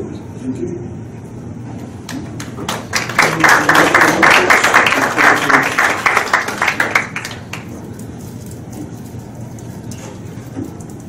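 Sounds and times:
audience applauding: 0:02.1 - 0:07.7.

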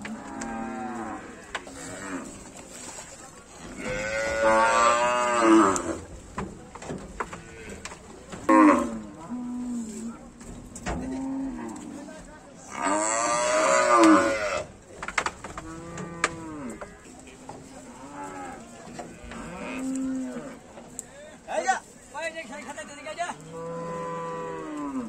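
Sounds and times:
cattle mooing: 0:00.0 - 0:02.4, 0:03.6 - 0:06.1, 0:07.2 - 0:10.0, 0:12.7 - 0:14.7, 0:15.6 - 0:17.1, 0:17.9 - 0:20.6, 0:23.3 - 0:25.0.

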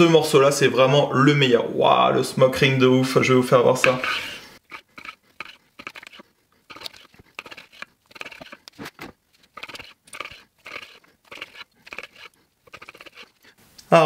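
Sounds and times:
knife sawing through crusty meat: 0:04.0 - 0:13.6.

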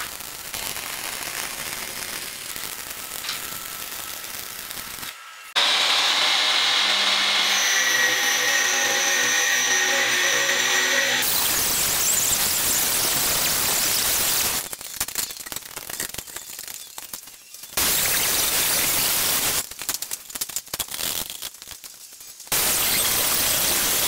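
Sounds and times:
angle grinder cutting steel: 0:00.6 - 0:14.6.

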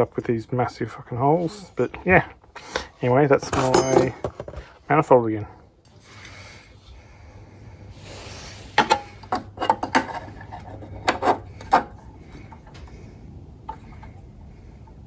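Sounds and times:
hard objects knocking and clattering: 0:03.4 - 0:04.8, 0:08.8 - 0:12.9.

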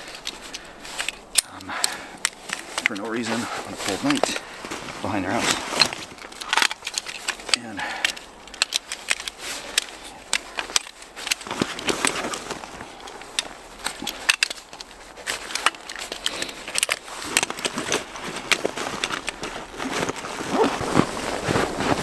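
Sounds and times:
gear rustling and crinkling: 0:00.0 - 0:22.0.

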